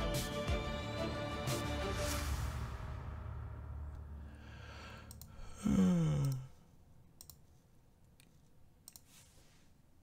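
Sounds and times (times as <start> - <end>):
sharp clicks: 5.0 - 5.4
man humming: 5.4 - 6.6.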